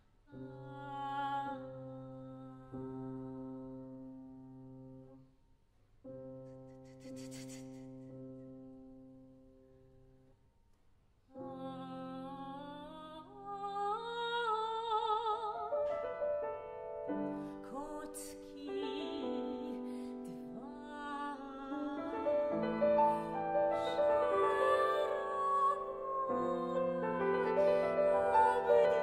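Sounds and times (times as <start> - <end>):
woman singing classical song: 0.3 - 4.9, 11.3 - 29.0
grand piano: 0.3 - 5.3, 11.3 - 29.0.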